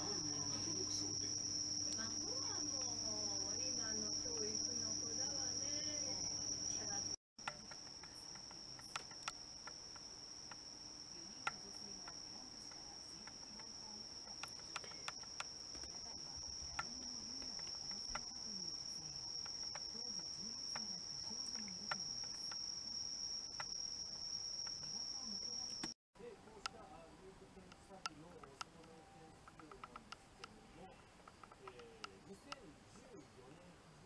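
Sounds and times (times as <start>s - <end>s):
crickets chirring: 0.0s - 26.0s.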